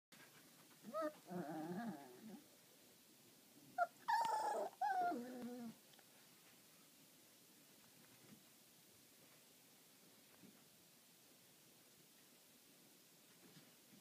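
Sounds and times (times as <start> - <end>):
puppy whining cries: 0.9 - 2.4, 3.8 - 5.8
puppy growls: 0.9 - 2.5, 3.8 - 5.8.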